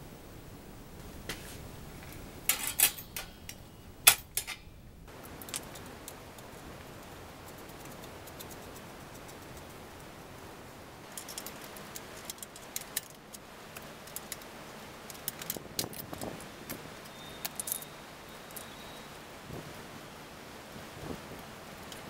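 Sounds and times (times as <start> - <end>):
metal tools clinking: 2.0 - 4.8, 17.2 - 18.7.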